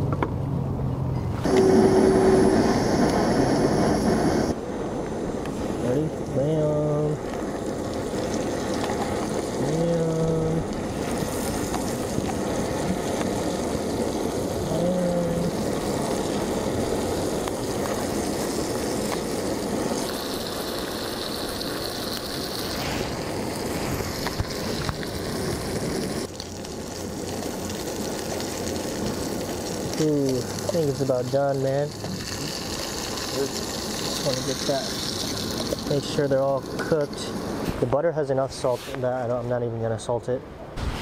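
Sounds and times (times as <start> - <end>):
gas stove burner hissing: 1.4 - 39.1
food sizzling in butter: 7.0 - 37.6.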